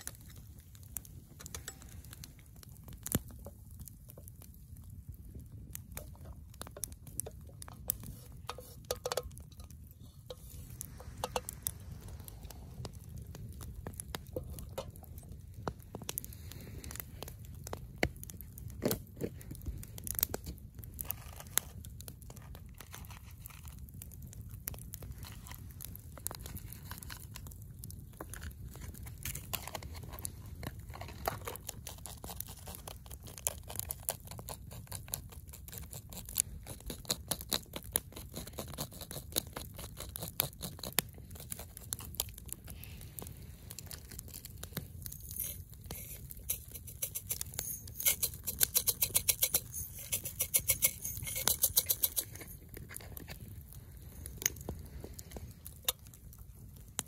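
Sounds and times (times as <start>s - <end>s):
low steady rumble: 0.0s - 23.0s
campfire crackling and popping: 0.0s - 57.0s.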